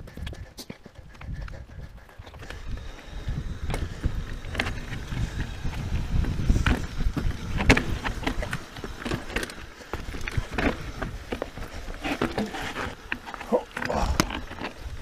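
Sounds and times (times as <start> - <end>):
wind on microphone: 0.0 - 13.1
bike tyres rumbling on dirt trail: 0.0 - 15.0
bike clattering over rocks: 3.6 - 15.0.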